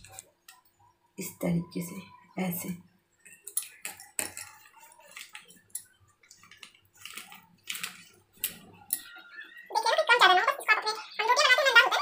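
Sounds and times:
plastic sheet crinkling: 0:03.8 - 0:08.7.

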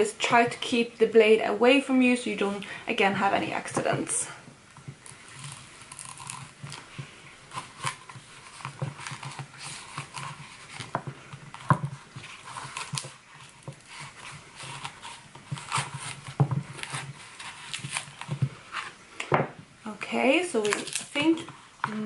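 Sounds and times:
knife scraping cardboard: 0:05.1 - 0:19.0.

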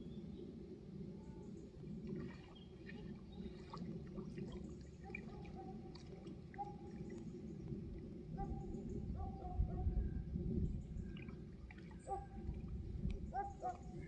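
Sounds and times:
small water splashes: 0:01.5 - 0:08.8, 0:10.7 - 0:14.0
water sloshing and dripping: 0:01.7 - 0:09.3, 0:10.7 - 0:14.0.

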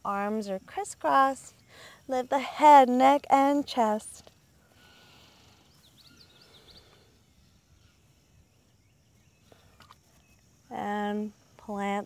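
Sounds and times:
faint outdoor ambience: 0:00.0 - 0:12.0.

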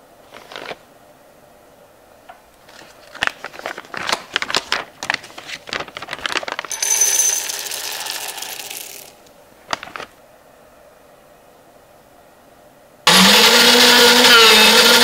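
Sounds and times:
foil bag crinkling: 0:02.6 - 0:06.8, 0:07.4 - 0:10.2
coffee beans pouring into grinder: 0:06.6 - 0:09.2.

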